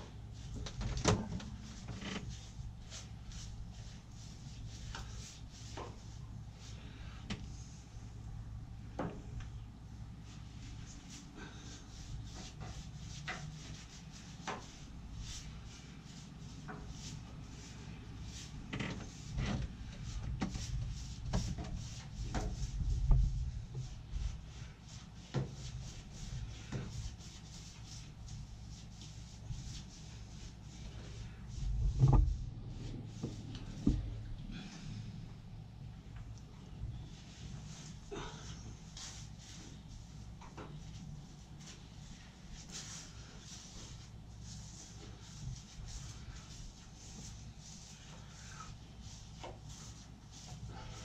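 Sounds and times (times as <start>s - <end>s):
heavy thumps: 31.7s - 34.2s.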